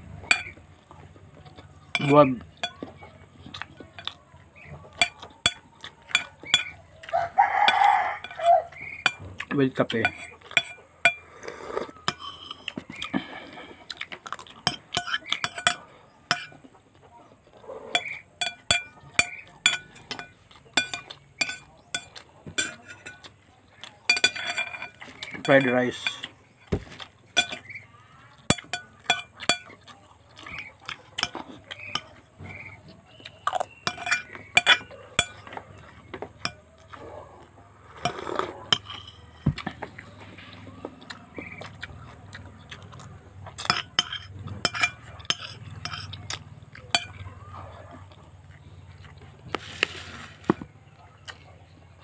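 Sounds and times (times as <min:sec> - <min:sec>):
chewing and mouth noises: 0:00.0 - 0:50.0, 0:50.8 - 0:52.0
clinks against ceramic plate: 0:00.2 - 0:00.6, 0:01.9 - 0:06.8, 0:07.6 - 0:11.2, 0:12.0 - 0:13.2, 0:14.3 - 0:16.7, 0:17.9 - 0:27.8, 0:28.4 - 0:36.9, 0:38.0 - 0:40.1, 0:43.5 - 0:47.6.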